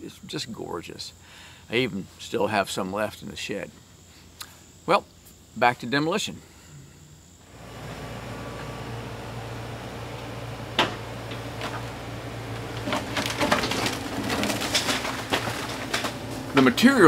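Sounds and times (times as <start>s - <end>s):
diesel engine running: 7.5s - 17.0s
wooden framing cracking: 10.8s - 16.9s.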